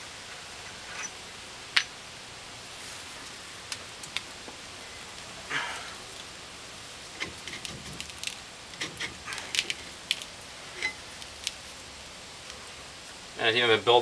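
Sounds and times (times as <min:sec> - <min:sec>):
metal scrape: 0:00.6 - 0:01.2, 0:08.8 - 0:09.9.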